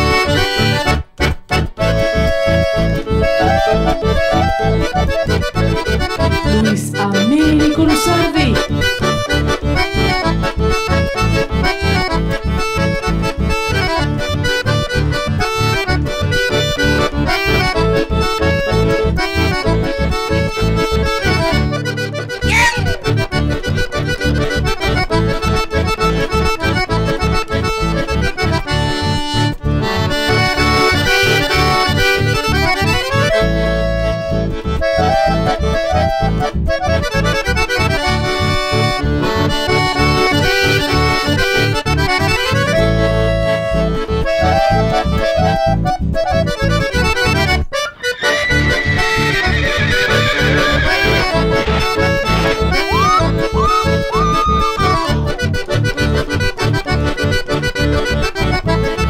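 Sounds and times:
accordion playing a tune: 0.0 - 59.0
steady bass beat: 50.8 - 59.0.

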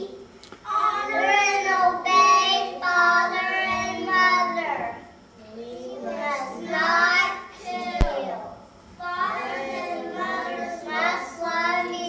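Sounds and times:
children singing: 0.8 - 5.0, 9.0 - 12.0.

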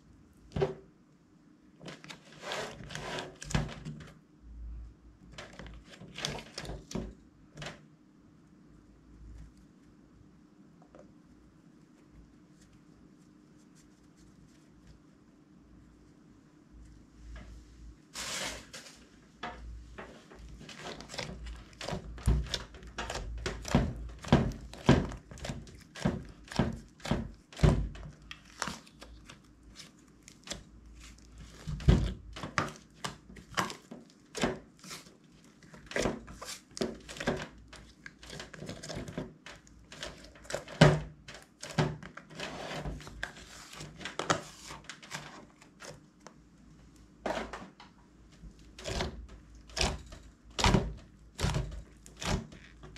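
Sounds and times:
slime squelching: 20.2 - 42.4.

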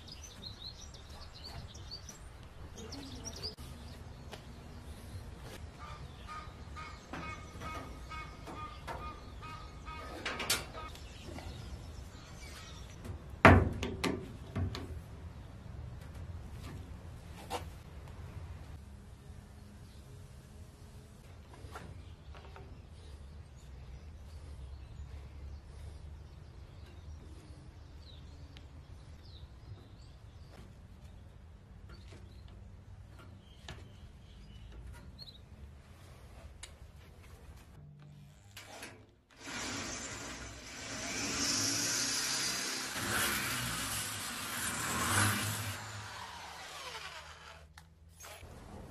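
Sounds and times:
faint birds chirping: 0.0 - 13.5, 18.2 - 38.5
hand tool work noises: 38.2 - 48.5.

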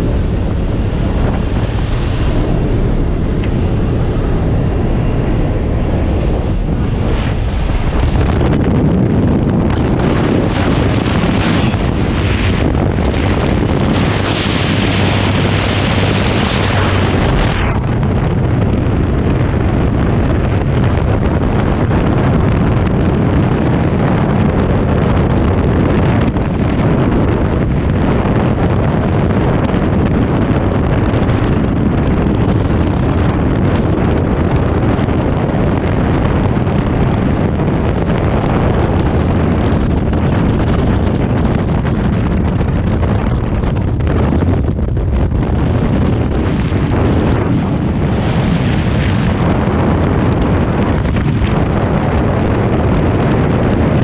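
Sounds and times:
light aircraft engine and slipstream: 0.0 - 54.0
wind buffeting microphone: 0.0 - 54.0.

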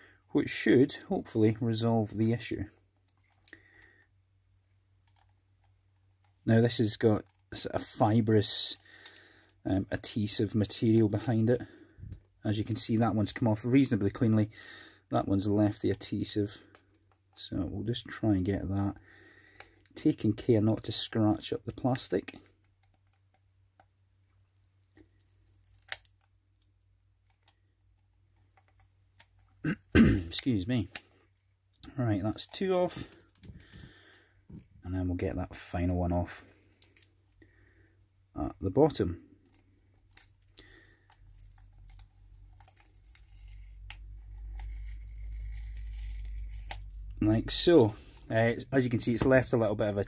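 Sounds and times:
knife scraping plastic: 40.1 - 47.1
sticker tearing off plastic: 41.2 - 47.1.

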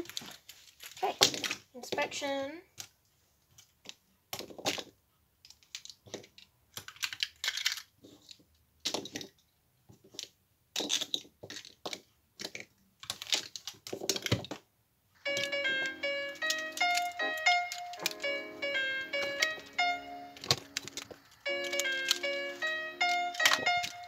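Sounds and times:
plastic puzzle pieces clicking: 0.0 - 24.0
music: 15.2 - 24.0.

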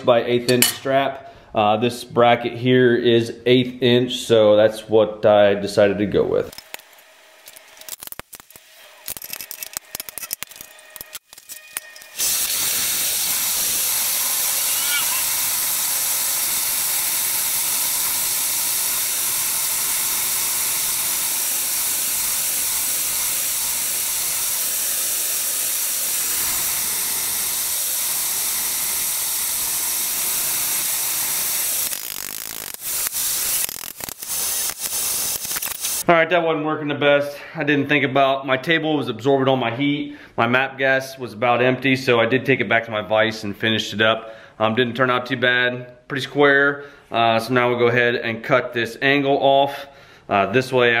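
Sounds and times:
gas torch hissing: 12.0 - 36.0.

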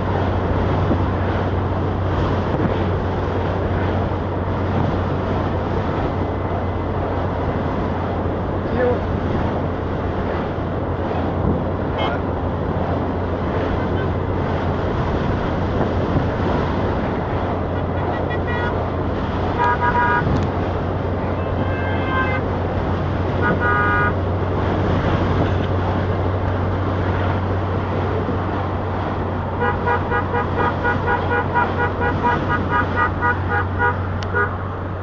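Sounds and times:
engine and road drone: 0.0 - 35.0
car horns tooting: 17.7 - 18.8, 19.5 - 20.5, 21.1 - 22.6, 23.3 - 24.3, 29.5 - 34.7.

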